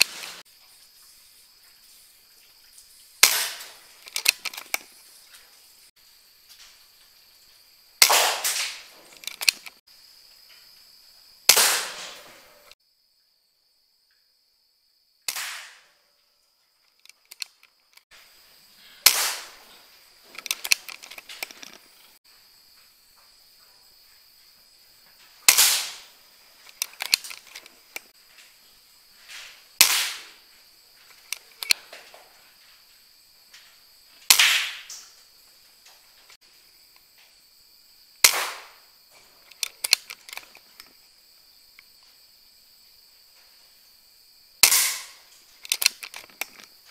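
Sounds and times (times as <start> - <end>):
air rifle shots: 3.2 - 4.6, 8.0 - 9.7, 11.5 - 12.8, 15.3 - 15.9, 19.0 - 19.7, 25.5 - 27.7, 29.8 - 30.4, 34.3 - 35.0, 38.2 - 38.8, 44.6 - 46.2
quick clicks: 3.2 - 5.0, 8.0 - 9.8, 15.3 - 15.9, 16.8 - 18.1, 19.0 - 22.2, 25.4 - 28.1, 31.1 - 31.8, 38.2 - 41.0, 44.6 - 46.9.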